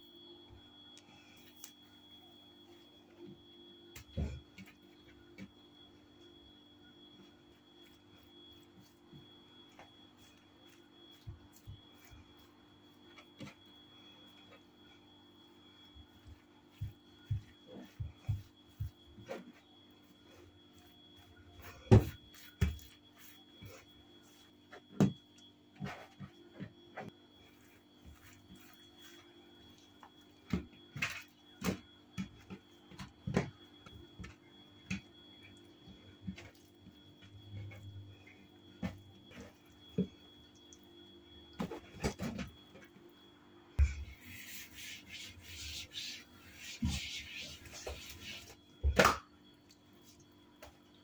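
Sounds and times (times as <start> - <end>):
faint steady hum: 0.0 - 51.0.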